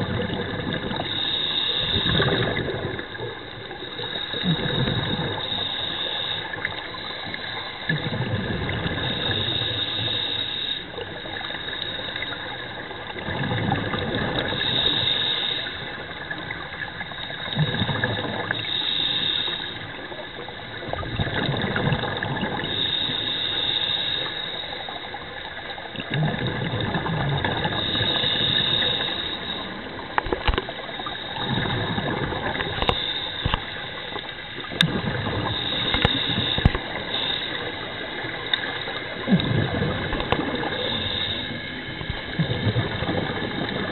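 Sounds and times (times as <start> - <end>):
gurgling bubble exhalations: 0.0 - 1.1, 1.9 - 3.4, 4.4 - 5.4, 7.9 - 9.8, 13.1 - 15.0, 17.5 - 18.6, 20.7 - 22.8, 25.9 - 33.6, 34.7 - 38.3, 38.9 - 43.9
regulator breathing hiss: 0.7 - 8.2, 8.8 - 13.1, 14.4 - 20.5, 22.6 - 25.3, 27.6 - 31.7, 32.7 - 39.2, 40.1 - 42.4.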